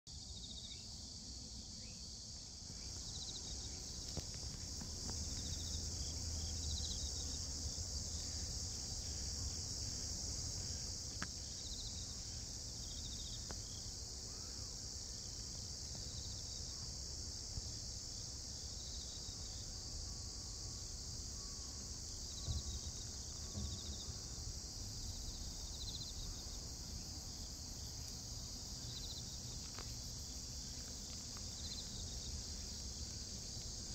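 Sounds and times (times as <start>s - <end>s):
high-pitched insect chorus: 0.1s - 33.9s
short insect chirps: 18.6s - 33.9s.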